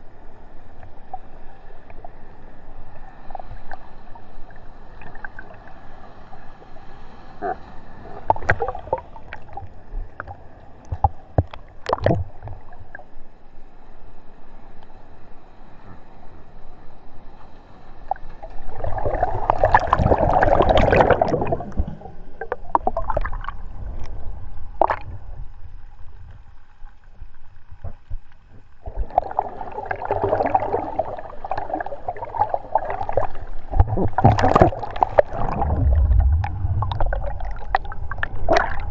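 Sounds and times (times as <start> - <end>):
sea water sloshing and slapping: 7.4 - 13.0, 18.0 - 38.9
breaking wave whitewater rushing: 35.2 - 38.9.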